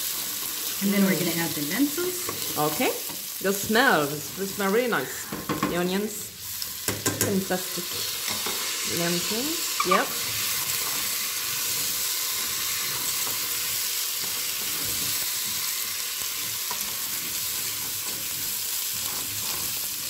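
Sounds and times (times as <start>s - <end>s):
grains sizzling in oil: 0.0s - 20.0s
grains scraping against pot: 7.9s - 15.4s.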